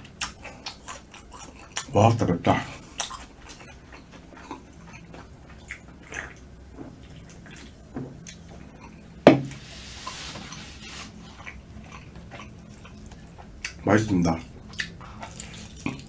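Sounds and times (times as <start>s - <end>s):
can knocking on wooden table: 9.3s - 9.6s.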